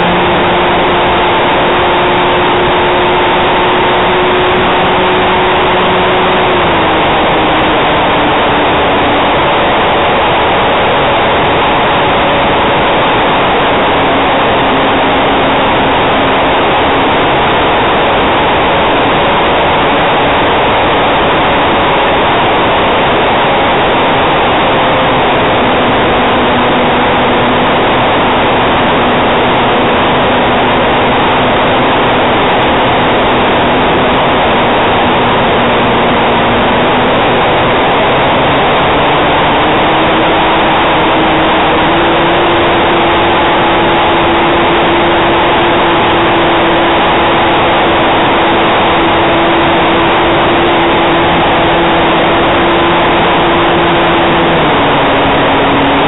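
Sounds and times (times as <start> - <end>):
model plane motor humming: 0.0 - 9.6, 24.2 - 56.0.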